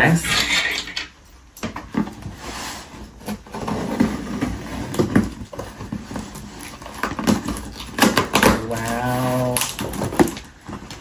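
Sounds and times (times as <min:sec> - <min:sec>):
cardboard rustling: 0:01.6 - 0:11.0
scratching on packing tape: 0:02.3 - 0:11.0
tape tearing: 0:02.9 - 0:11.0.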